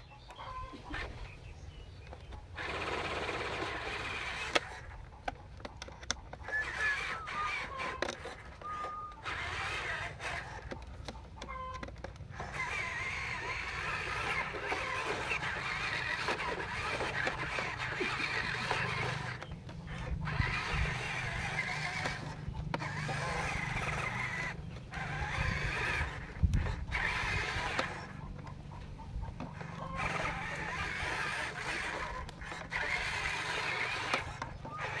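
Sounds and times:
toy truck electric motor whining: 2.1s - 35.0s.

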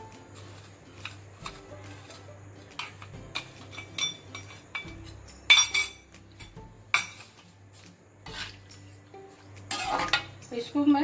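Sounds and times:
metal spoon clinking on metal pan: 1.0s - 7.4s, 9.7s - 10.8s.

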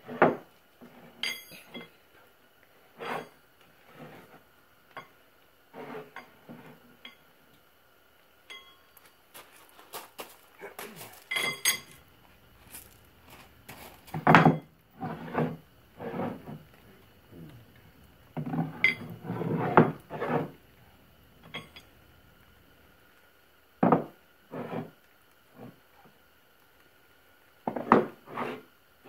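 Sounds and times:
ringing metallic clink: 1.2s - 1.9s, 8.5s - 8.9s, 11.3s - 12.0s.

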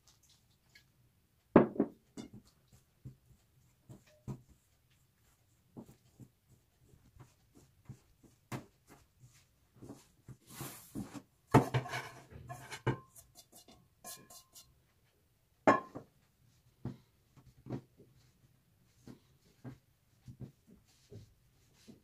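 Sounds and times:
utensils and dishes knocking: 11.6s - 14.7s.

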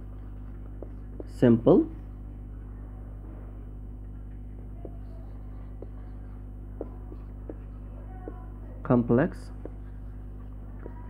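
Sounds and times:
low electrical hum: 0.0s - 11.0s
marker squeaking on whiteboard: 4.7s - 8.4s.

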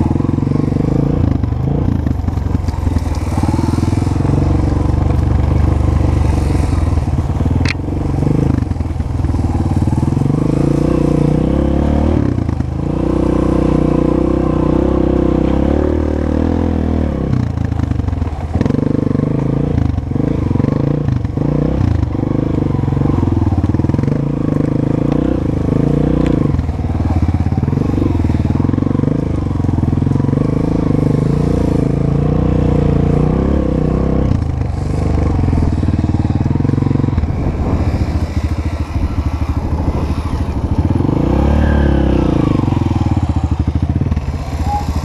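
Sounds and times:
dirt bike engine running: 0.0s - 15.0s, 17.4s - 45.0s
dirt bike engine revving: 0.0s - 17.2s, 23.0s - 45.0s.

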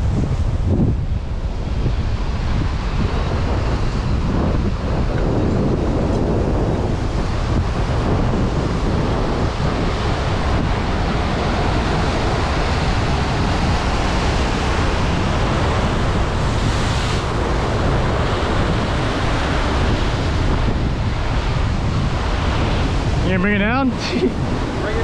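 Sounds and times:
ocean surf breaking on rocks: 0.0s - 25.0s
wind buffeting microphone: 0.0s - 25.0s.

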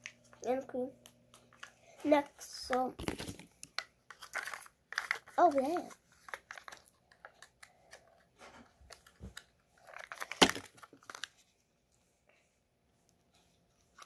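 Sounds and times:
plastic capsule crinkling and clicking: 2.6s - 11.4s.

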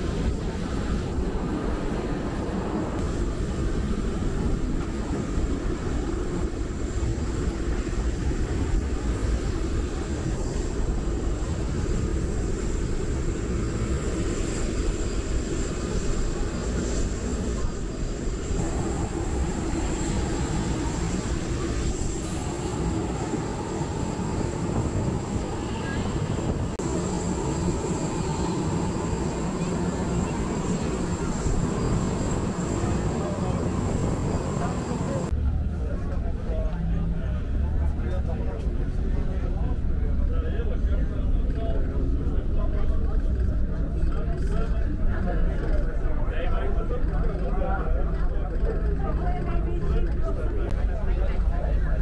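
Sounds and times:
high-pitched jet whine: 0.0s - 35.4s.

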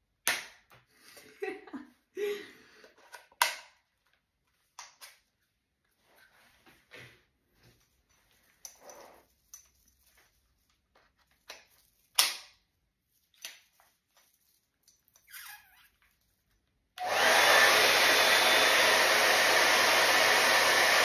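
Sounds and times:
hot-air brush blowing: 17.0s - 21.0s.

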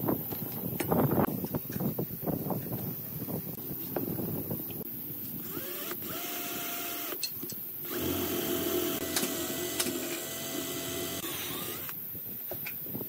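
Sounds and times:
cordless drill boring wood: 5.4s - 7.2s, 7.8s - 12.0s.

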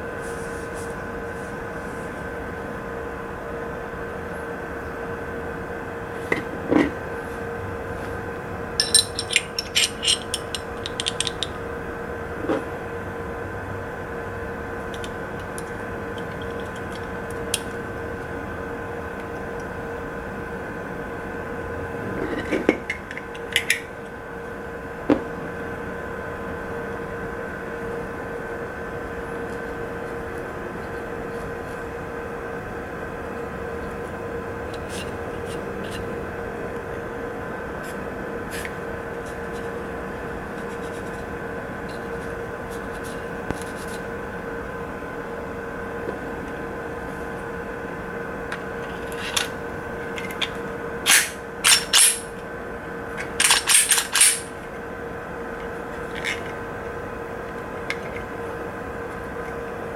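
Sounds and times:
background hum: 0.0s - 59.9s
pistol parts clicking: 51.1s - 52.2s, 53.4s - 54.5s.

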